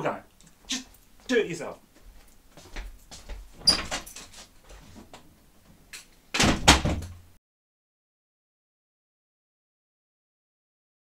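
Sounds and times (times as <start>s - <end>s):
door opening: 3.6s - 4.4s, 6.3s - 7.3s
door shutting with heavy bang: 6.4s - 7.2s.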